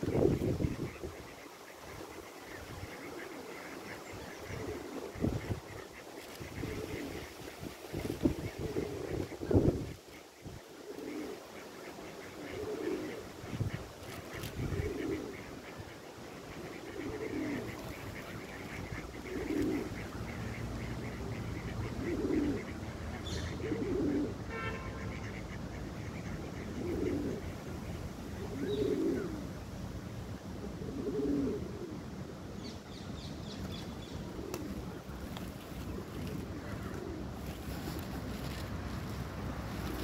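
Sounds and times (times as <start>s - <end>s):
bird cooing: 2.9s - 5.2s, 6.2s - 7.4s, 10.8s - 11.5s, 12.2s - 13.3s, 14.0s - 15.7s, 16.5s - 18.3s, 19.1s - 20.1s, 21.8s - 24.4s, 26.6s - 27.5s, 28.4s - 29.4s, 30.6s - 32.1s, 33.6s - 40.0s.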